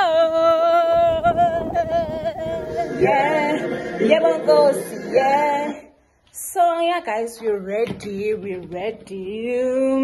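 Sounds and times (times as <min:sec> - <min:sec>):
several voices singing: 0:00.0 - 0:06.0.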